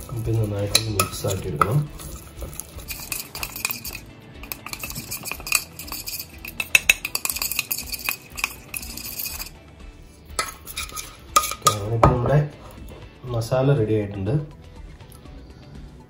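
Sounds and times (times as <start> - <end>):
spoon clinking against bowl: 0.0 - 9.6, 10.3 - 12.3.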